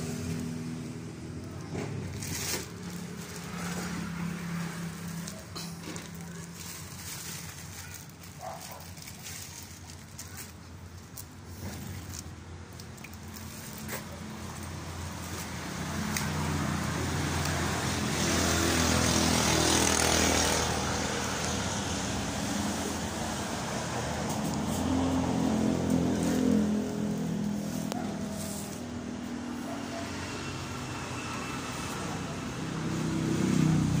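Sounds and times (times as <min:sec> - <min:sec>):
motor vehicle engine passing: 0:00.0 - 0:07.9, 0:13.2 - 0:34.0.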